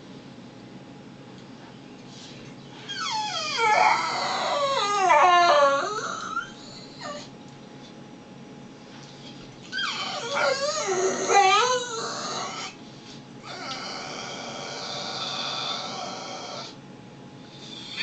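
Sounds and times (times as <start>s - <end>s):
dog whining and howling: 2.8s - 7.4s, 9.7s - 12.8s, 13.4s - 16.8s, 17.7s - 18.0s.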